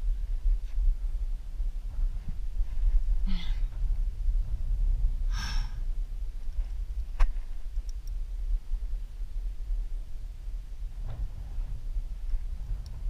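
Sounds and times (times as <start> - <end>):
low wind rumble: 0.0 - 13.0
person exhaling heavily: 5.3 - 5.8.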